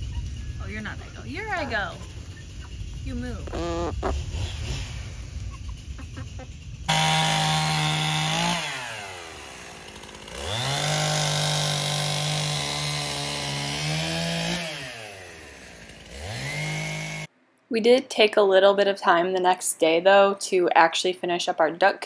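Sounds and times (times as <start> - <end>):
chainsaw engine revving: 0.0 - 17.3.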